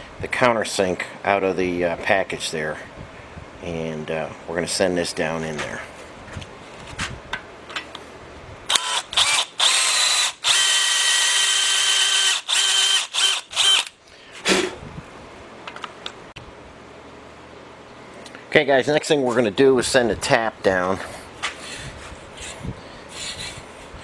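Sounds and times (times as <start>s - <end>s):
electric drill running: 8.7s - 14.0s.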